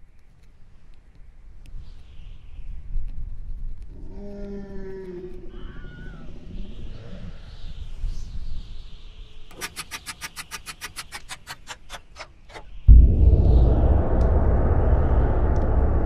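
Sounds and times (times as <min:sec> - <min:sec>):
sharp clicks: 0:09.5 - 0:12.8.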